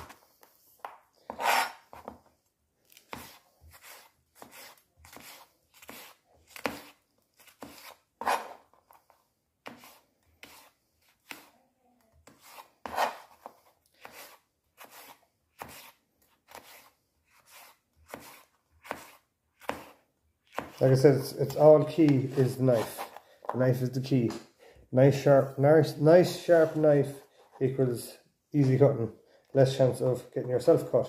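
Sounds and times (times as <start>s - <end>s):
knife chopping on cutting board: 9.6s - 11.5s, 12.2s - 20.8s.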